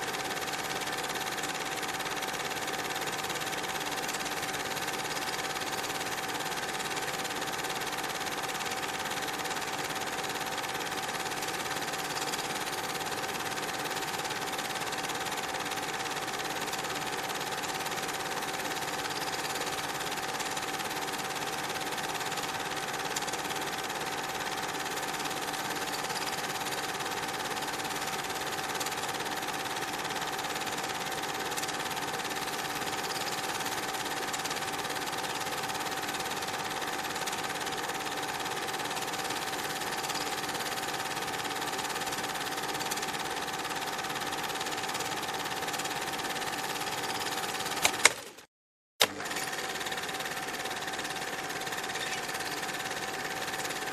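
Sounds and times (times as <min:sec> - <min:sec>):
film projector whirring: 0:00.0 - 0:53.9.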